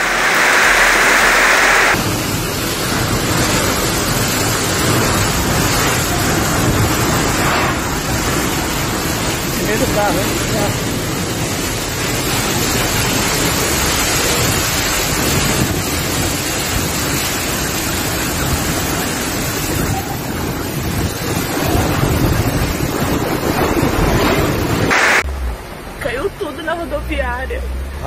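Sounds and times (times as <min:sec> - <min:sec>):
strong gusting wind: 0:00.0 - 0:25.2
heavy rain: 0:00.0 - 0:28.0
wind buffeting the microphone: 0:03.1 - 0:24.9.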